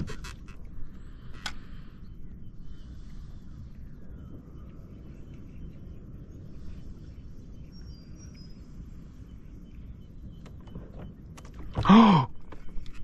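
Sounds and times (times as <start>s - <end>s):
wind and water rumble: 0.0s - 13.0s.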